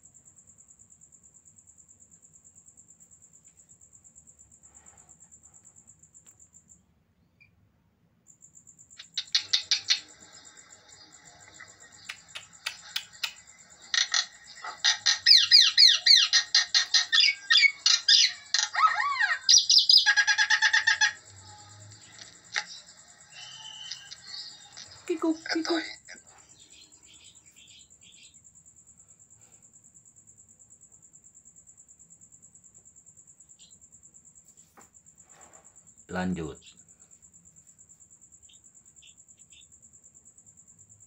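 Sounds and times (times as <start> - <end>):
bird chirping: 9.0 - 28.7, 33.4 - 34.0, 38.2 - 40.0.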